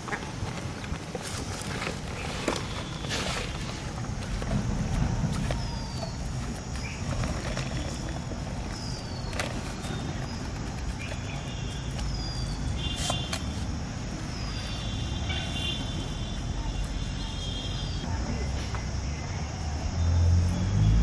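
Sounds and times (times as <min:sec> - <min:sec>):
steady low rumble: 0:00.7 - 0:11.3.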